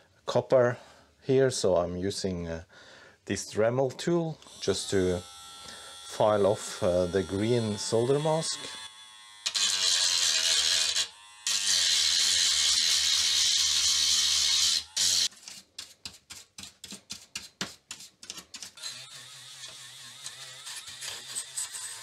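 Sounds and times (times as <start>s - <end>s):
rotary tool grinding: 4.5s - 15.6s, 18.0s - 22.0s
hand tool scraping board: 9.5s - 22.0s.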